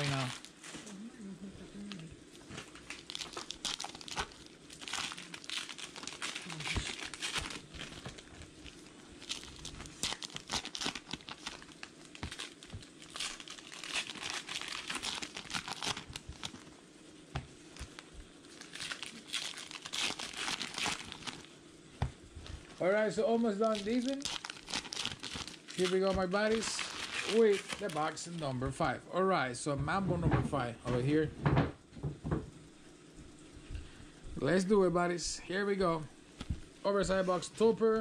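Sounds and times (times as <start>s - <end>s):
foil wrappers tearing and crinkling: 0.0s - 0.8s, 2.5s - 16.8s, 17.5s - 21.6s, 23.4s - 28.6s.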